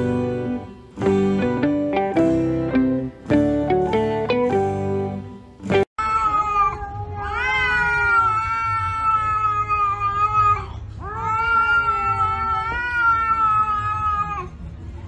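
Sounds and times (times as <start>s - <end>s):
cat yowling: 6.0s - 14.6s.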